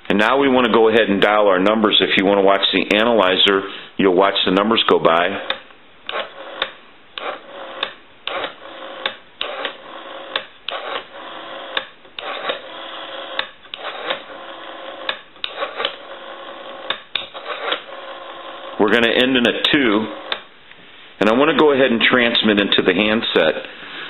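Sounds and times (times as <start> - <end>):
rotary telephone dial clicking: 5.4 - 18.8.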